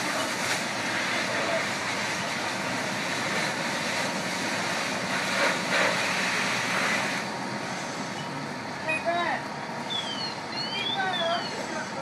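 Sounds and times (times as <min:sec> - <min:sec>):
rushing hiss: 0:00.0 - 0:08.2
fire engine pump running: 0:00.0 - 0:12.0.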